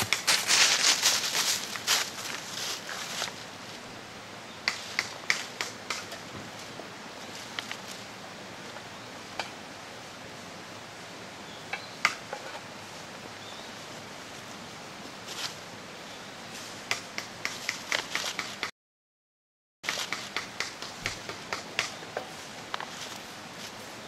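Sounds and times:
dry leaves crackling underfoot: 0:00.0 - 0:03.9, 0:06.5 - 0:08.2, 0:15.2 - 0:15.6, 0:22.2 - 0:24.0
steady outdoor hiss: 0:00.0 - 0:18.7, 0:19.8 - 0:24.0.

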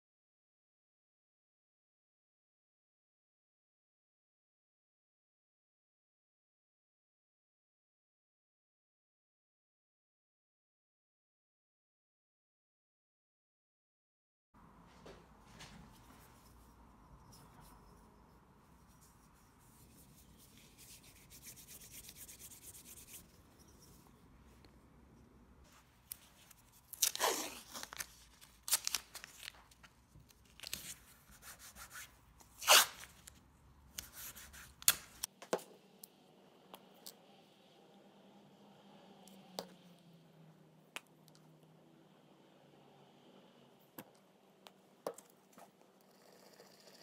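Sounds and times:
faint rubbing and handling: 0:14.8 - 0:24.9, 0:25.6 - 0:35.3
tape tearing: 0:26.1 - 0:31.0, 0:32.5 - 0:33.4.

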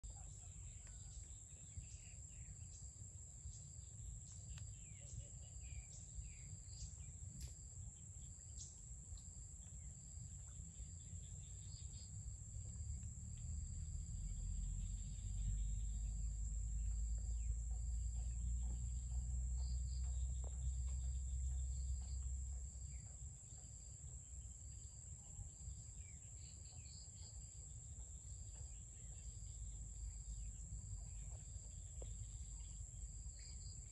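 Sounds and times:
pulsing insect call: 0:09.6 - 0:33.9
low rumble: 0:12.1 - 0:23.0.

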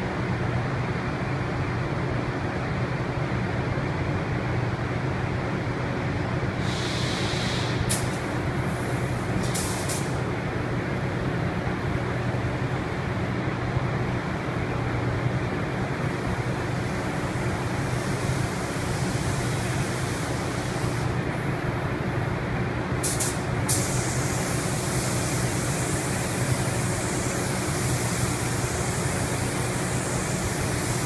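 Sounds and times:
ventilation fans droning: 0:00.0 - 0:31.0
spray gun air hissing: 0:06.6 - 0:10.3, 0:16.1 - 0:21.2, 0:23.0 - 0:31.0.

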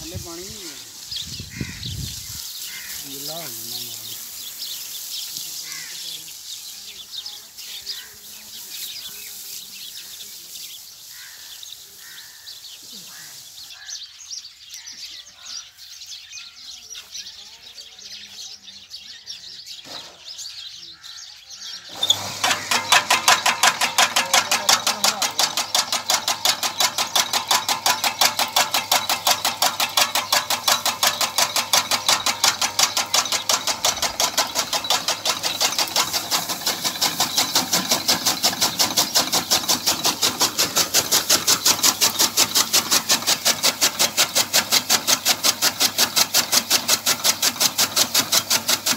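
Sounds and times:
chaff cutter blades clacking: 0:21.9 - 0:48.9.

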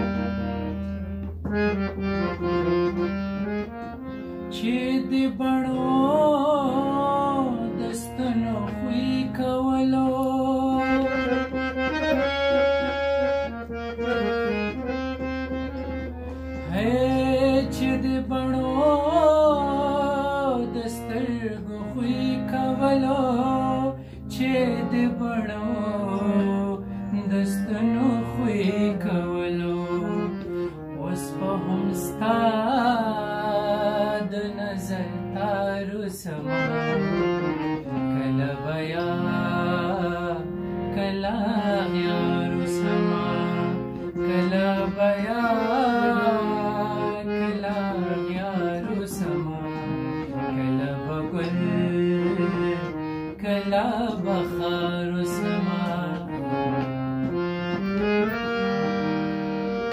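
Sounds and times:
harmonium melody: 0:00.0 - 0:59.9
man singing ornamented phrases: 0:04.5 - 0:11.6, 0:16.6 - 0:37.2, 0:37.8 - 0:56.8.

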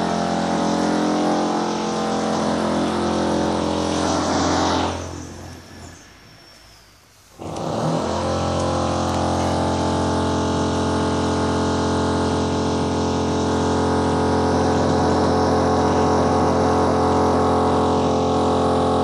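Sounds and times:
power drill drilling concrete: 0:07.4 - 0:19.0.

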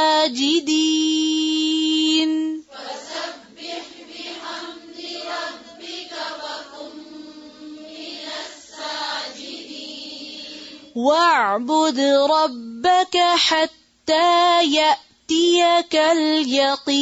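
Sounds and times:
person reciting: 0:00.0 - 0:17.0
group chanting in unison: 0:02.7 - 0:11.0.

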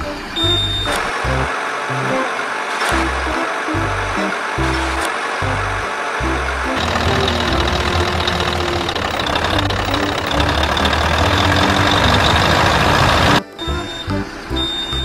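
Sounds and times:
truck engine idling: 0:00.4 - 0:14.7
toy truck pushed by hand: 0:06.2 - 0:13.4.

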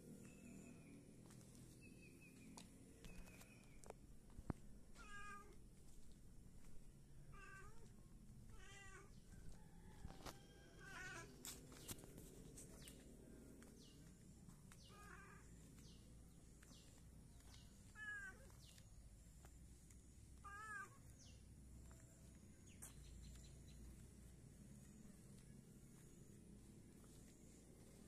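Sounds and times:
cat meowing: 0:05.0 - 0:05.6, 0:07.3 - 0:07.9, 0:08.5 - 0:09.2, 0:20.4 - 0:21.0.

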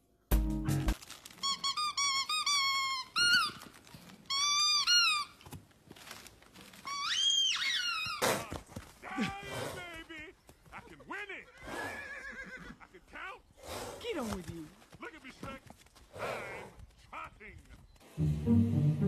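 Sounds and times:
squeaky dog toy squeaking: 0:01.4 - 0:03.6, 0:04.3 - 0:05.4.

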